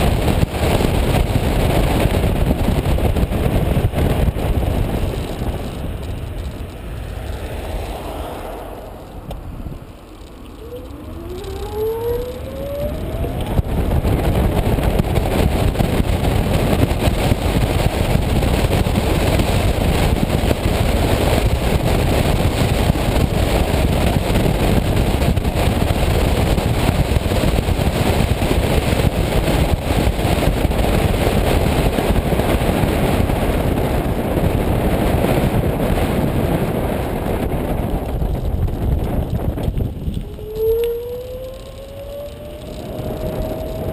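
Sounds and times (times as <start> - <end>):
tyres on a wet road: 0.0 - 43.9
wind noise: 0.0 - 43.9
electric motor whine: 10.4 - 14.2, 40.2 - 43.9.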